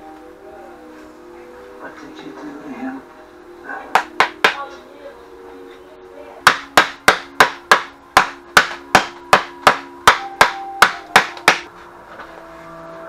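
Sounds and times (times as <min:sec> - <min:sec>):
hammer blows on wood: 0:06.5 - 0:11.7.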